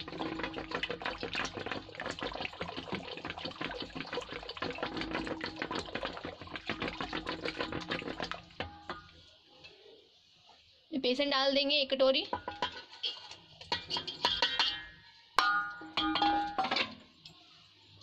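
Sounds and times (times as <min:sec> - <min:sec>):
yogurt sloshing: 0:00.0 - 0:09.4.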